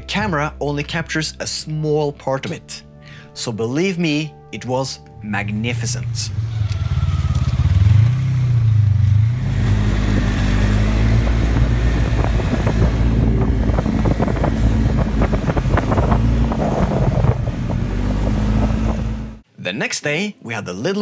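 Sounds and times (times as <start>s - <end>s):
wind buffeting microphone: 9.7s - 19.4s
snowmobile engine running: 9.8s - 19.4s.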